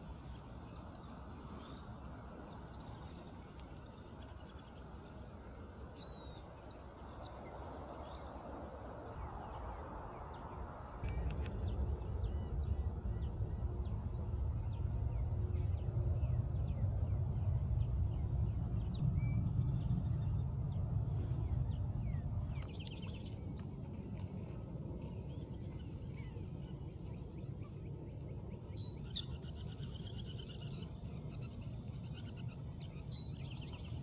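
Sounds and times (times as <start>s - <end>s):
low rumble: 9.2s - 28.1s.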